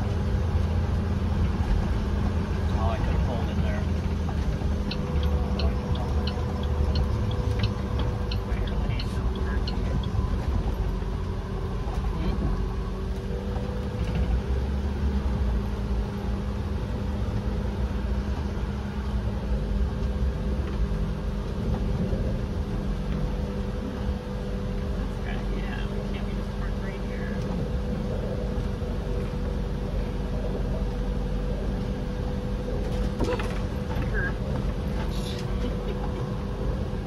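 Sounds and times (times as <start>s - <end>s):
vehicle engine and road rumble: 0.0s - 37.0s
light regular ticking: 3.9s - 10.5s.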